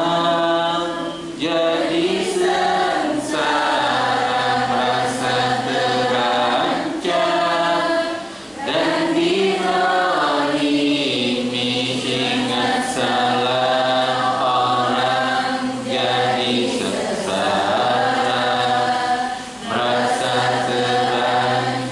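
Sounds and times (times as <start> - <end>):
man singing into a microphone: 0.0 - 2.1.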